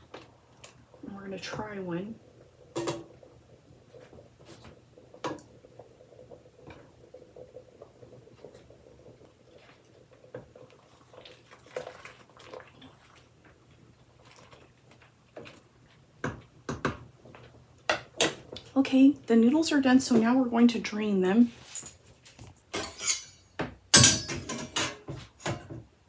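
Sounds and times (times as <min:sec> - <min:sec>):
spoon stirring in pot: 0:00.1 - 0:13.3.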